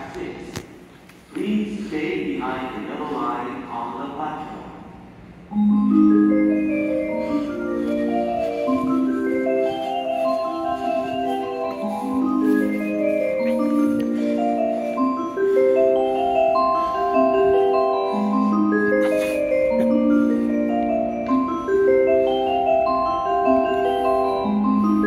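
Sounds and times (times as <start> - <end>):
chime-like melody over loudspeakers: 5.5 - 25.0.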